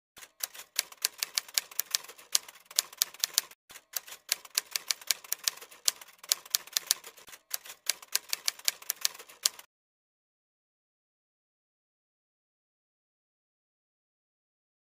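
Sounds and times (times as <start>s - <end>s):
keystroke clicks: 0.2s - 9.7s.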